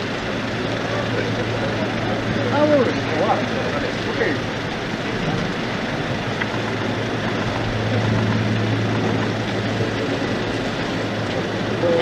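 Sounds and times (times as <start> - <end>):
jet engines rumbling: 0.0 - 12.0.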